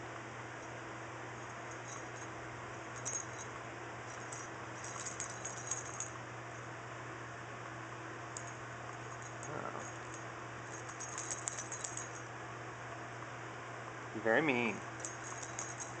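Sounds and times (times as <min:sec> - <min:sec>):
steady low hum: 0:00.0 - 0:16.0
cat toys jingling: 0:01.4 - 0:02.3, 0:02.9 - 0:03.5, 0:04.1 - 0:06.2, 0:08.4 - 0:12.3, 0:15.0 - 0:16.0.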